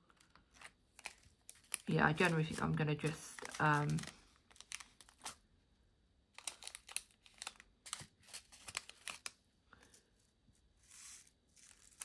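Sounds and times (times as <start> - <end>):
plastic bags crinkling: 0.4 - 5.4, 6.4 - 9.4.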